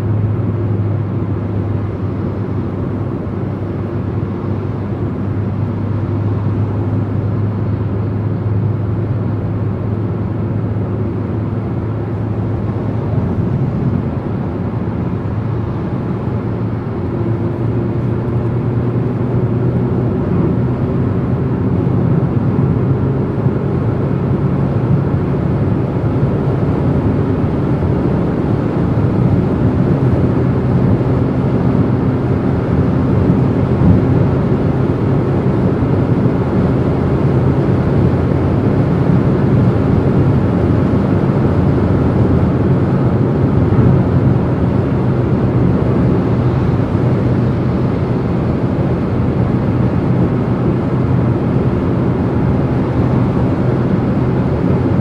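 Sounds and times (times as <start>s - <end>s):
road and wind noise: 0.0s - 55.0s.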